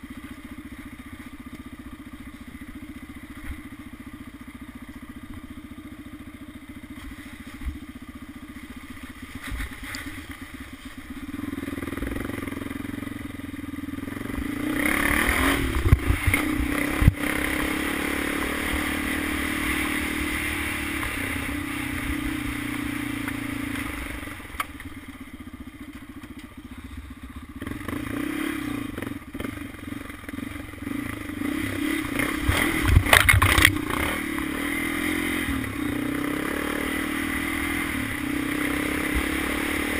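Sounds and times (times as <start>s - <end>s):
atv engine under throttle: 0.0s - 39.9s
knocks and rattles over rough ground: 8.6s - 12.5s, 32.1s - 34.5s.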